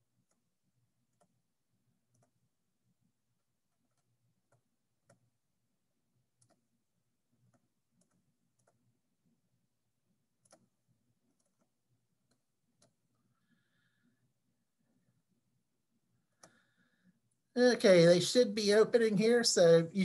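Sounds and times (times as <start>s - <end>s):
faint computer mouse clicks: 2.1s - 2.4s, 6.4s - 6.6s, 7.4s - 8.9s, 10.4s - 10.7s, 11.3s - 11.7s.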